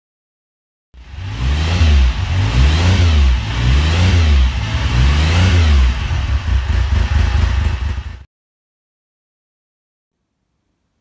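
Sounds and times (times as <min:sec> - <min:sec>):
motorcycle engine revving: 0:01.0 - 0:08.3.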